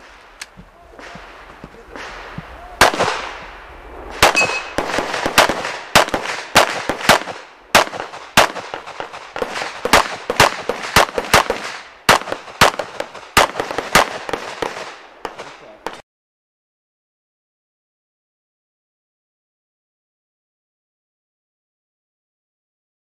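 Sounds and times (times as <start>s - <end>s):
pistol shots: 1.9s - 3.4s, 4.1s - 16.0s.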